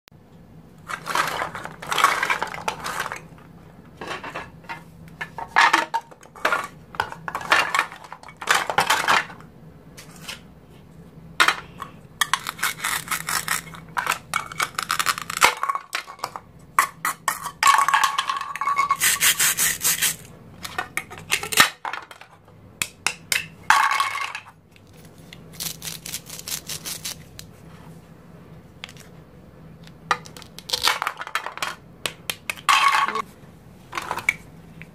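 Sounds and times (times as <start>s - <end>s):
plastic pieces clacking: 11.4s - 19.2s.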